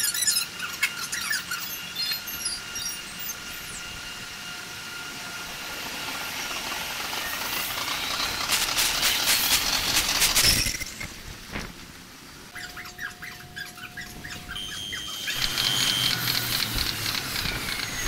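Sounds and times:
train rushing hiss: 2.6s - 10.6s
train rapid clatter: 4.9s - 11.7s, 15.3s - 18.0s.

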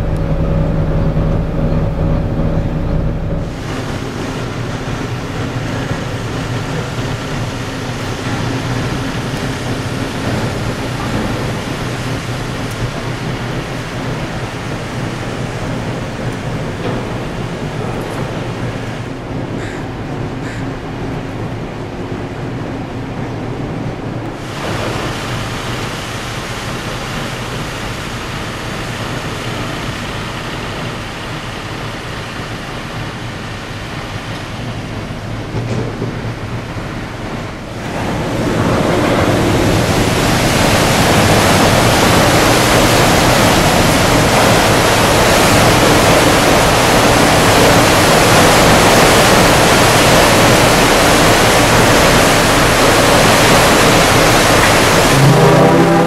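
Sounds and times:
propeller wash churning water: 0.0s - 56.0s
ship machinery hum: 0.0s - 56.0s.

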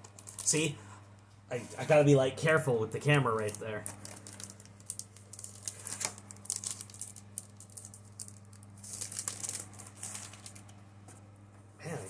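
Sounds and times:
packaging and cardboard crinkling: 0.0s - 0.7s, 3.3s - 10.8s
low steady hum: 0.0s - 12.0s.

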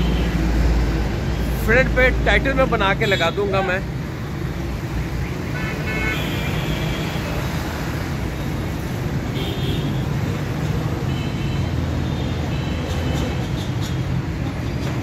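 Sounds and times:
traffic passing: 0.0s - 15.0s.

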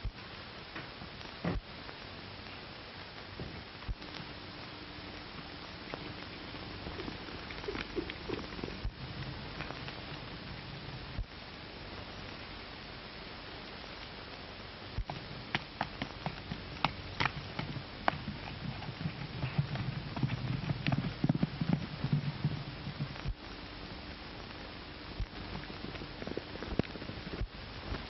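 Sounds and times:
old film soundtrack hiss: 0.0s - 28.0s
horse hoofbeats galloping: 5.9s - 10.2s, 15.0s - 23.4s.

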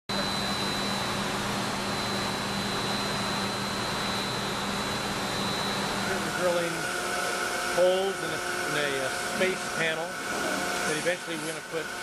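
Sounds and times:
high-pitched machine whine: 0.1s - 12.0s
low machine hum: 0.1s - 12.0s.

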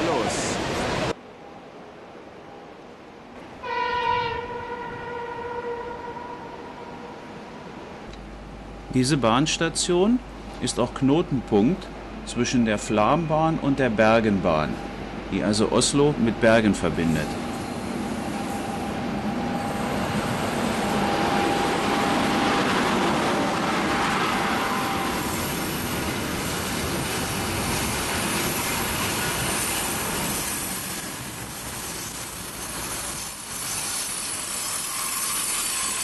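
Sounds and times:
train wheels rumbling on rails: 7.8s - 36.0s
high wheel squeal: 28.7s - 36.0s.

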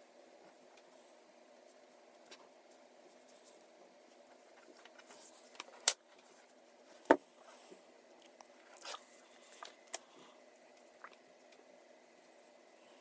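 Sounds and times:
faint steady hum: 0.0s - 13.0s
cord rustling and sliding: 2.2s - 7.6s.

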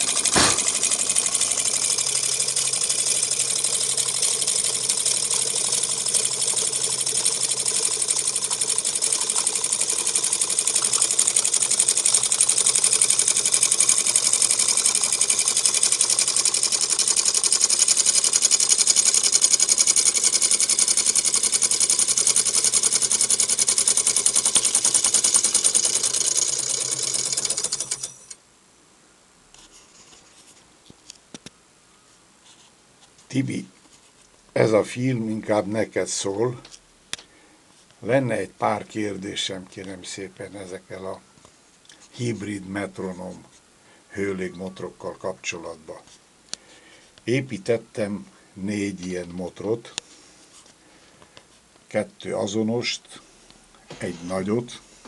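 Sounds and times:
small engine rapid mechanical clatter: 0.0s - 28.4s.

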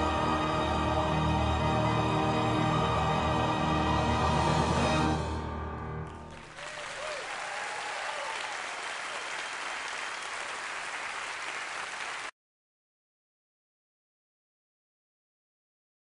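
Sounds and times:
audience applause: 6.0s - 12.3s
audience cheers: 6.4s - 12.3s.

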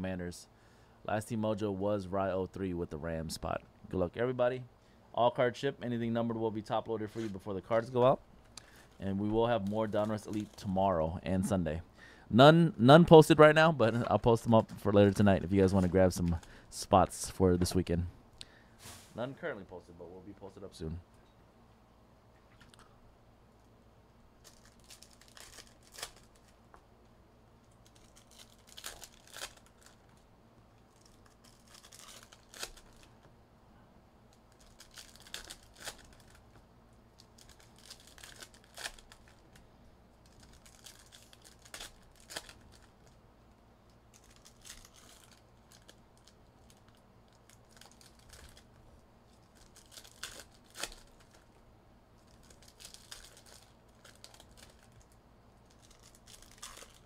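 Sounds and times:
plastic wrapping tearing and crinkling: 9.5s - 10.7s, 24.4s - 26.6s, 27.6s - 30.2s, 30.8s - 33.2s, 34.4s - 36.5s, 37.1s - 39.6s, 40.2s - 43.2s, 44.1s - 51.6s, 52.2s - 57.0s.

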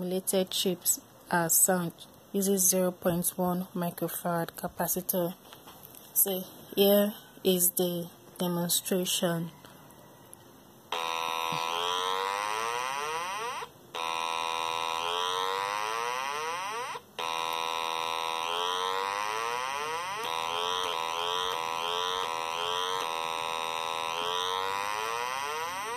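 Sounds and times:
electronic buzzy horn tone: 10.9s - 25.9s.

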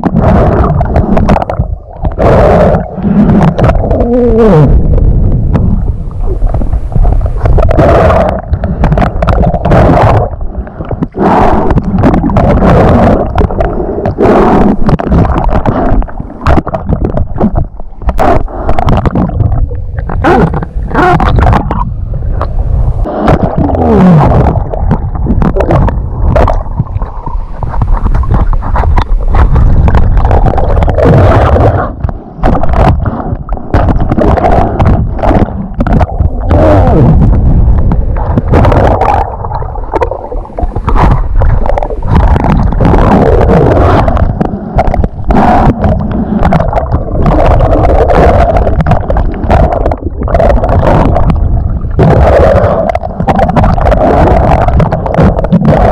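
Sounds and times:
muffled rumble: 0.0s - 55.9s
water gurgling and sloshing: 0.0s - 55.9s.

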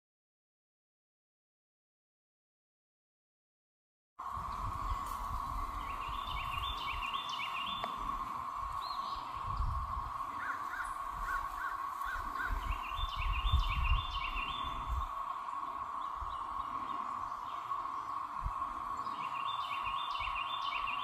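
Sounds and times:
cicadas droning: 4.2s - 21.0s
songbird rising stepped notes: 4.2s - 21.0s.

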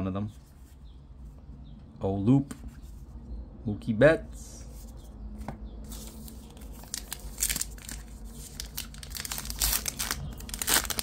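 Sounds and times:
card wrapper crinkling and tearing: 6.0s - 11.0s.

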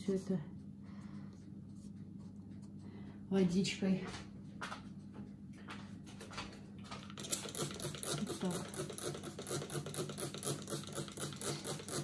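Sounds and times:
spray bottle squirts: 7.2s - 12.0s.

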